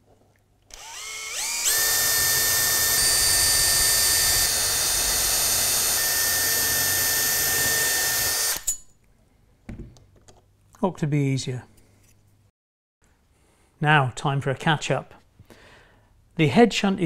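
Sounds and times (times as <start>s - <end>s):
cordless drill whining: 0.7s - 8.8s.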